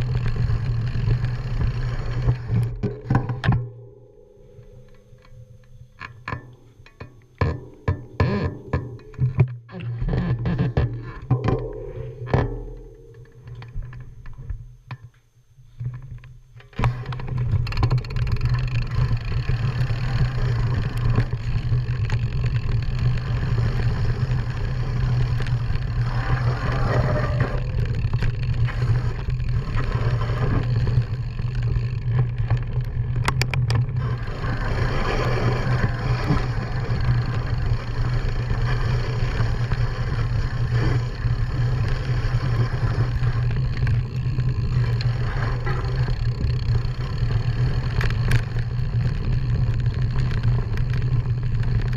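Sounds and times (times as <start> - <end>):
bike tyres and rattling: 0.0 - 51.9
sharp clicks and knocks: 1.0 - 19.8, 25.0 - 34.2.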